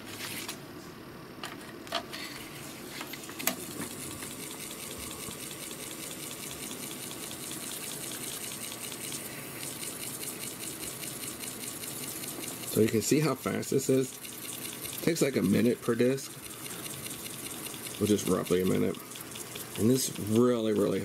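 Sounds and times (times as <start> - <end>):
floppy drive motor spinning: 3.0 - 21.0
swab rubbing on spinning disk: 4.3 - 21.0.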